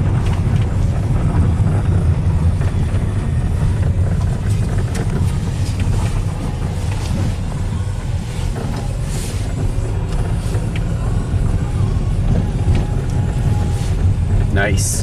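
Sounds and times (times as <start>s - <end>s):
engine and tyre rumble: 0.0s - 15.0s.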